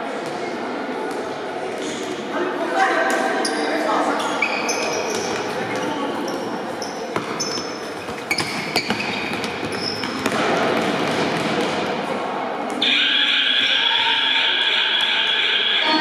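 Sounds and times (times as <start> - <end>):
voices of players and spectators: 0.0 - 16.0
shoes squeaking on floor: 3.4 - 10.4.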